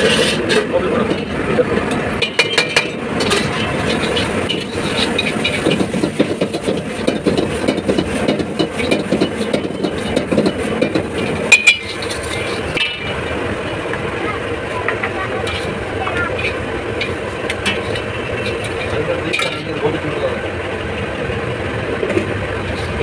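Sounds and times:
frying and burner noise: 0:00.0 - 0:23.0
metal spatula clanking on wok: 0:02.2 - 0:13.3, 0:14.9 - 0:19.9.

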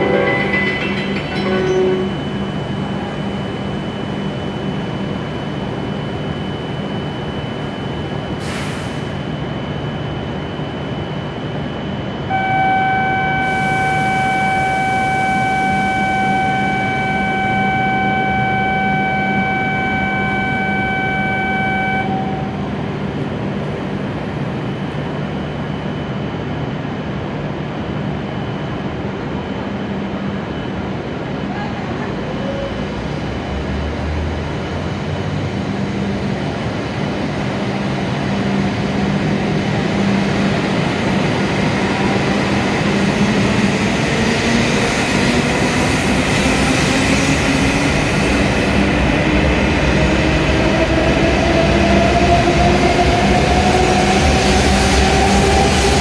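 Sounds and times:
electronic warning tone: 0:00.0 - 0:07.0, 0:12.3 - 0:22.7
station noise: 0:00.0 - 0:08.4, 0:09.3 - 0:25.6
train humming: 0:00.0 - 0:56.0.

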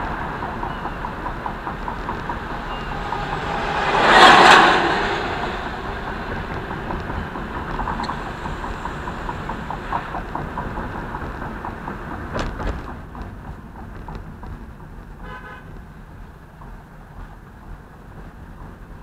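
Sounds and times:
rushing noise: 0:00.0 - 0:14.8
car road and engine noise: 0:00.0 - 0:19.0.

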